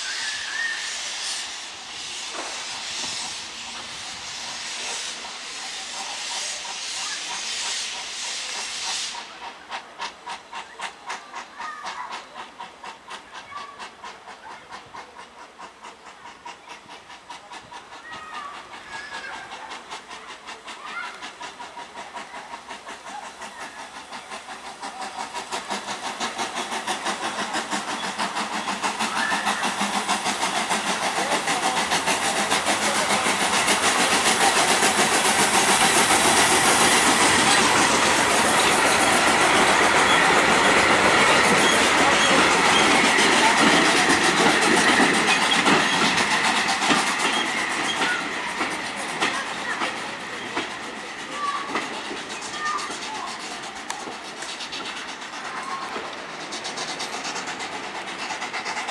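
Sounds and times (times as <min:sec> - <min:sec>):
steam locomotive exhaust chuffs: 0:00.0 - 0:58.9
train wheels clattering over rail joints: 0:02.2 - 0:06.5, 0:11.9 - 0:58.9.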